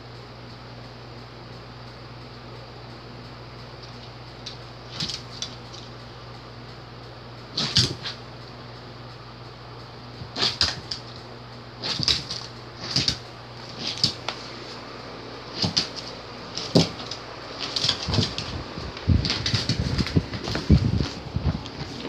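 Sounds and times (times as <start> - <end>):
dog paws thumping on wood: 4.9 - 5.7, 10.2 - 11.2, 11.8 - 14.4, 15.5 - 22.0
claws scrabbling on wood: 11.8 - 14.5, 15.5 - 22.0.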